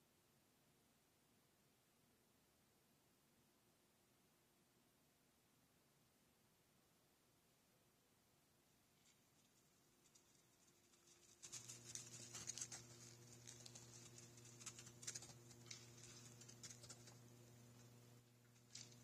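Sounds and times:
steady electrical hum: 0.0s - 19.0s
deer hooves running: 9.0s - 19.0s.

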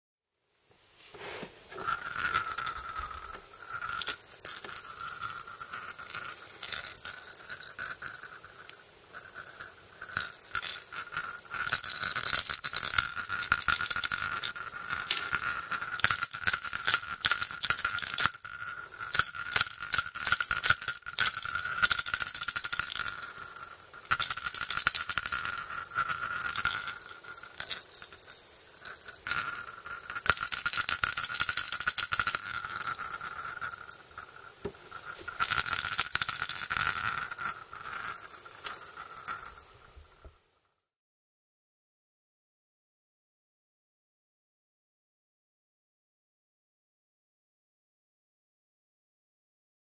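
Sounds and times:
thin high ring: 1.2s - 40.2s
toy maraca rattling: 1.8s - 40.2s.

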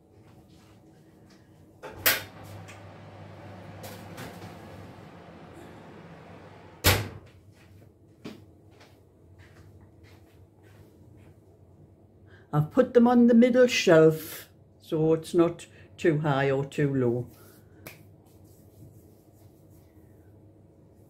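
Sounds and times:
low oven hum: 0.0s - 7.4s
oven door shutting with clunk: 1.9s - 7.2s
oven door click: 5.9s - 7.2s.

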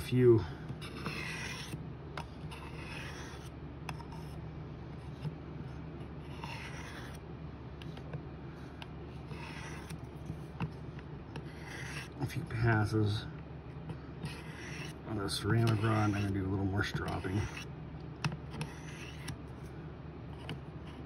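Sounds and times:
knife scraping on ceramic rod: 0.8s - 1.8s, 14.2s - 17.7s, 18.6s - 19.3s.

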